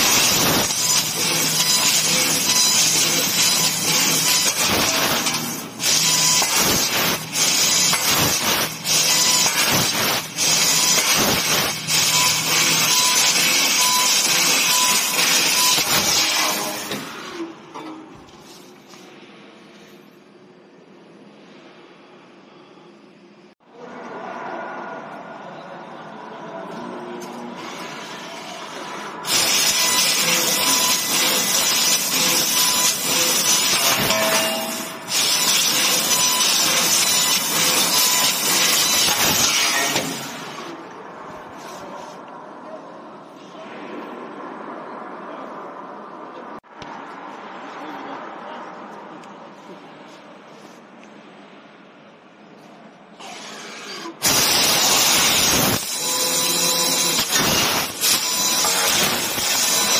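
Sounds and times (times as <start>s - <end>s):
laser cutter hissing: 0.0s - 17.0s, 28.6s - 40.5s, 54.2s - 59.9s.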